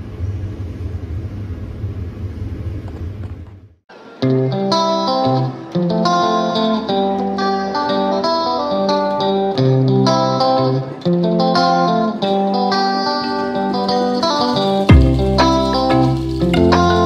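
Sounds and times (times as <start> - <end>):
guitar background music: 3.9 - 17.0.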